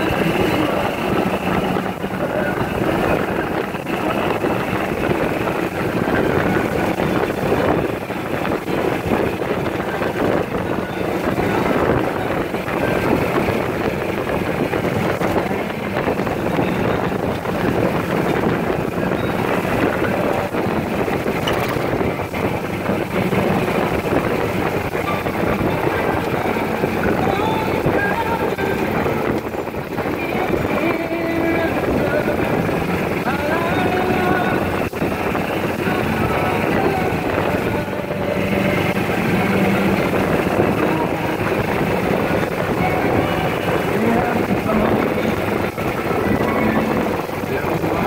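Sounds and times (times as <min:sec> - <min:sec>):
golf cart road noise: 0:00.0 - 0:48.0
wind over microphone: 0:00.0 - 0:48.0.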